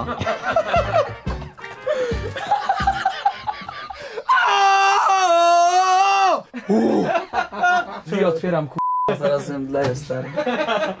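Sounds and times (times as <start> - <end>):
laughter and voices: 0.0 - 1.2, 2.2 - 4.2, 6.5 - 8.3, 10.2 - 11.0.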